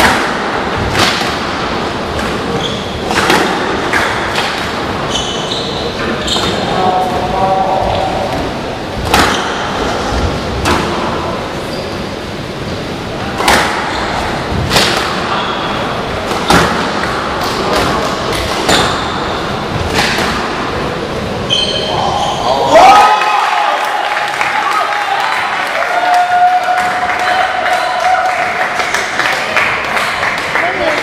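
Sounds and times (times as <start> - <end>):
ball hitting walls: 0.0 - 4.9, 8.3 - 11.1, 13.3 - 15.5, 16.2 - 20.8
racket hitting ball: 0.0 - 4.9, 9.0 - 9.8, 13.3 - 15.6, 16.2 - 20.8
shoes squeaking on wooden floor: 5.0 - 6.7.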